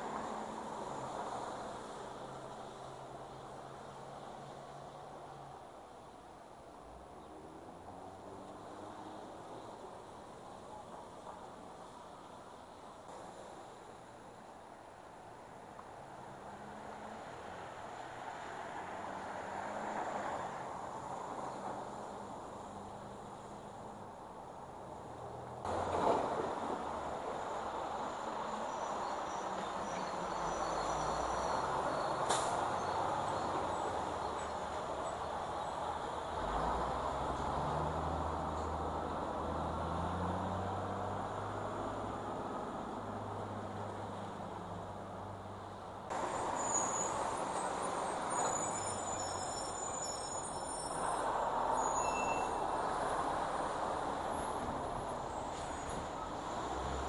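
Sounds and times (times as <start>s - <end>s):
traffic hiss on wet street: 0.0s - 57.0s
high squeaks: 48.3s - 52.8s.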